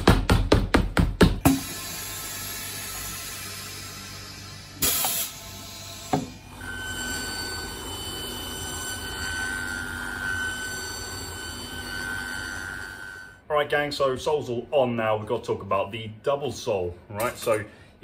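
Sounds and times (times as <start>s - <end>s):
press releasing with a hiss: 1.5s - 6.3s
finishing machine whining: 1.5s - 13.4s.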